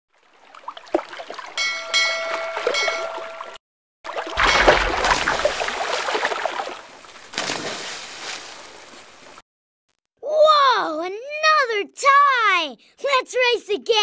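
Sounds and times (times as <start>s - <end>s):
water splashing: 0.1s - 9.4s.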